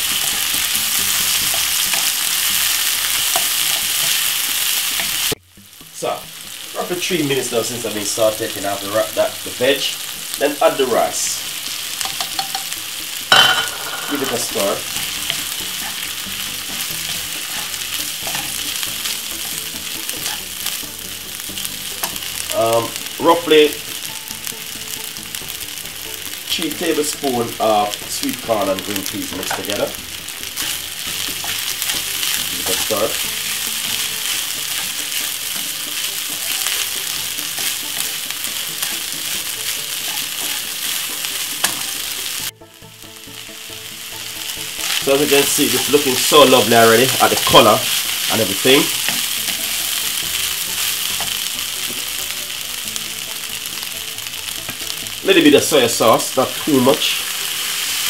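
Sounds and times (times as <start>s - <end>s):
food sizzling in frying pan: 0.0s - 58.0s
wooden spoon scraping and knocking: 12.0s - 20.8s, 28.0s - 42.5s.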